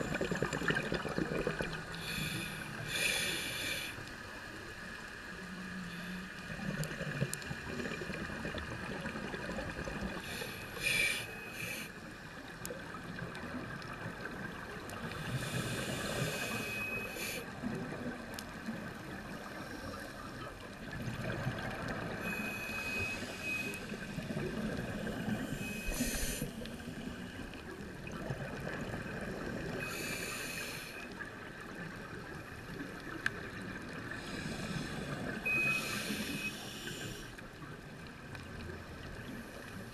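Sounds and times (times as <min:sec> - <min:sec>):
exhaled bubbles underwater: 0:00.0 - 0:02.1, 0:06.4 - 0:10.4, 0:17.5 - 0:30.1
diver breathing through regulator: 0:01.9 - 0:04.1, 0:10.2 - 0:12.0, 0:15.1 - 0:17.5, 0:22.2 - 0:24.0, 0:25.0 - 0:27.4, 0:29.8 - 0:31.1, 0:34.2 - 0:37.4.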